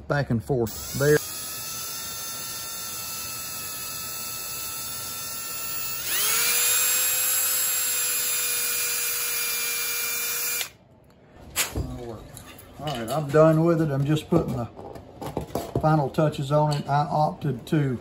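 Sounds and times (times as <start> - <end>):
cordless drill motor whine: 0.7 - 10.8.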